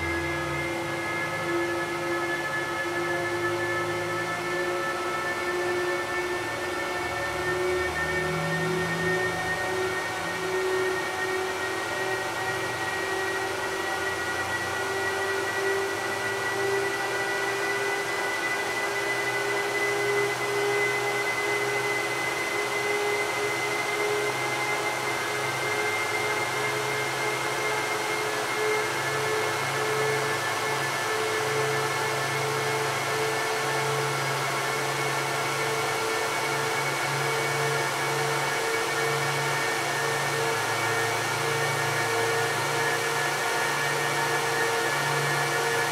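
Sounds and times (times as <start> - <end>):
server cooling fans whining: 0.0 - 45.9.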